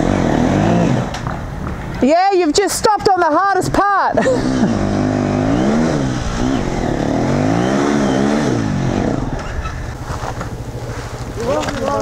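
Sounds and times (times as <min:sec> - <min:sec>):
dirt bike engine revving: 0:00.0 - 0:01.4, 0:04.2 - 0:12.0.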